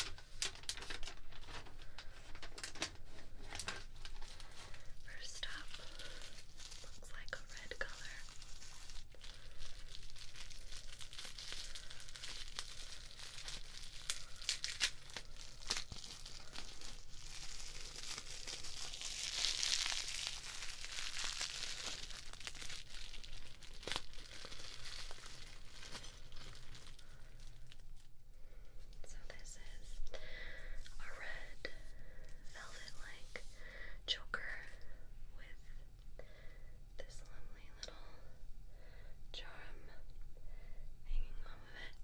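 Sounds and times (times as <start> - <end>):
bubble wrap crackling: 0.0 - 28.1.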